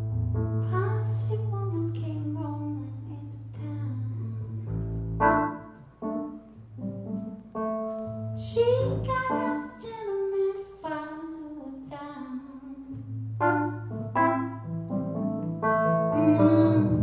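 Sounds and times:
woman singing: 0.7s - 4.7s, 8.4s - 13.3s, 16.2s - 17.0s
keyboard chords: 5.0s - 9.6s, 13.0s - 17.0s.

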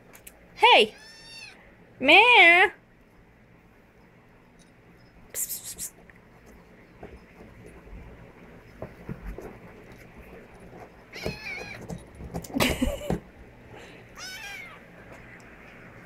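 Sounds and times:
kitten harsh cry: 0.9s - 1.6s, 11.1s - 11.8s, 14.2s - 14.8s
kitten meowing: 0.9s - 1.6s, 11.1s - 11.8s, 14.2s - 14.8s.

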